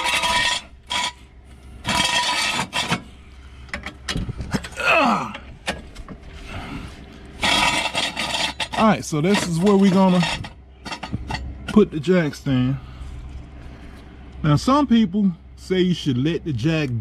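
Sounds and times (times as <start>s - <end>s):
metal clanks and knocks: 0.0s - 1.2s, 1.8s - 3.1s, 3.7s - 6.3s, 7.4s - 12.0s
jack stand scraping over asphalt: 0.0s - 12.6s.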